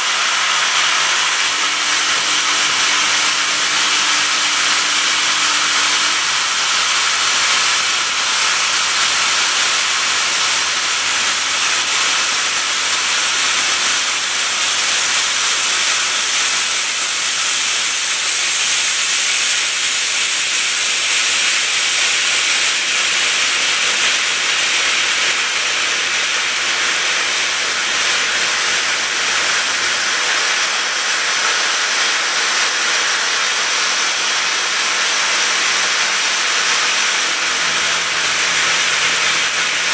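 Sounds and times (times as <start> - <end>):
drill cutting metal: 0.0 - 39.9.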